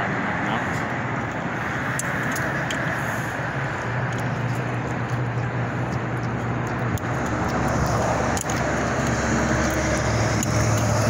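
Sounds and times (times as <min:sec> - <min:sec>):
low engine hum: 0:00.0 - 0:11.0
road traffic noise: 0:00.0 - 0:11.0.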